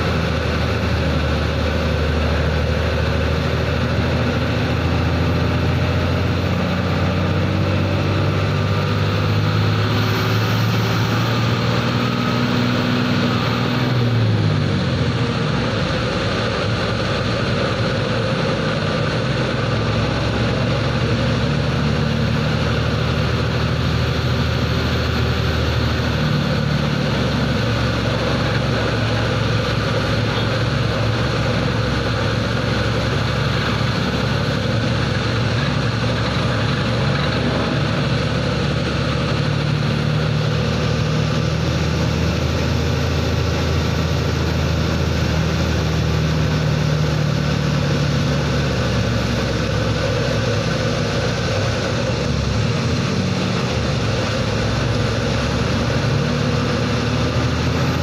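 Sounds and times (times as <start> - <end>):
truck engine running: 0.0 - 58.0.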